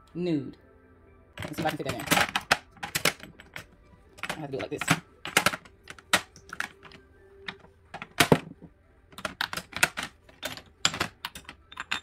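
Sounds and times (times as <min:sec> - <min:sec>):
glass bottles clinking: 0:09.4 - 0:12.0.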